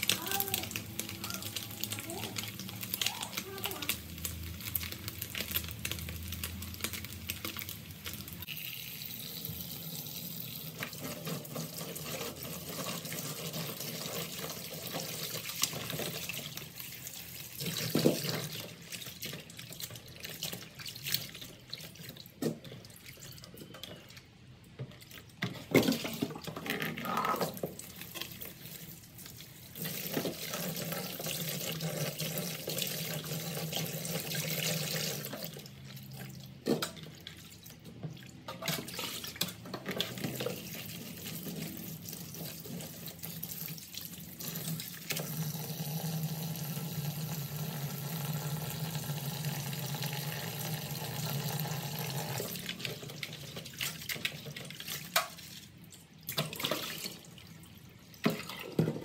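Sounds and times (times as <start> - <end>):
oil sizzling under frying fish: 0.0 - 22.3, 27.5 - 58.9
water sloshing and splashing: 10.7 - 32.4, 34.9 - 45.2, 52.4 - 59.0.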